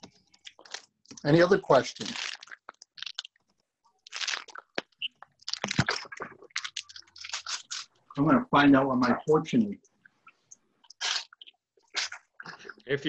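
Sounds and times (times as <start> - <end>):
fortune cookie wrapper crinkling: 0.3 - 7.9.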